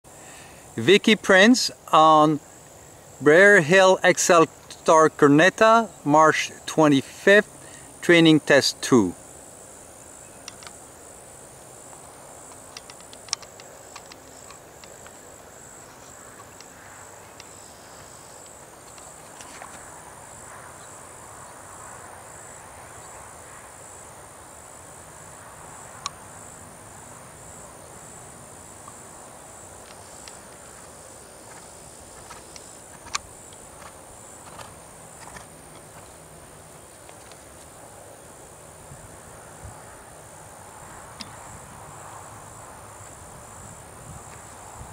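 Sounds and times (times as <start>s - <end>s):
insect chorus trilling: 0.1s - 44.9s
sharp clicks: 10.4s - 10.8s, 12.5s - 15.2s.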